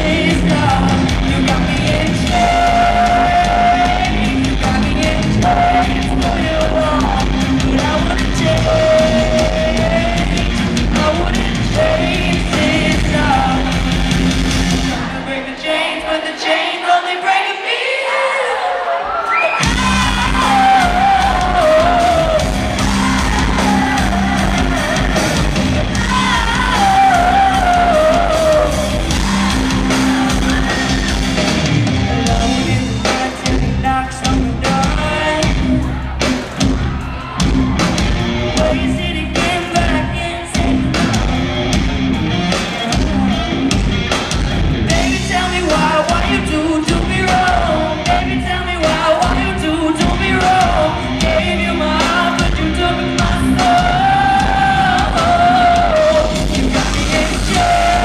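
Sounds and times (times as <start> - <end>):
bass guitar: 0.0 - 15.5, 19.6 - 58.0
drum kit: 0.0 - 16.0, 19.6 - 58.0
woman singing: 25.9 - 31.2.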